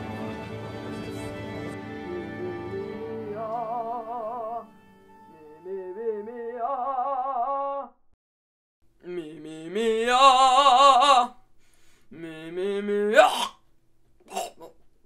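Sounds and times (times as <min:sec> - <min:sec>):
orchestral music: 0:00.0 - 0:05.7
operatic singing with vibrato: 0:00.0 - 0:07.9, 0:09.0 - 0:11.4.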